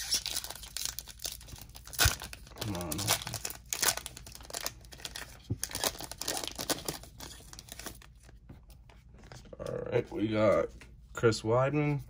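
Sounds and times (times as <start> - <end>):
wrapper tearing and crinkling: 0.0 - 8.1.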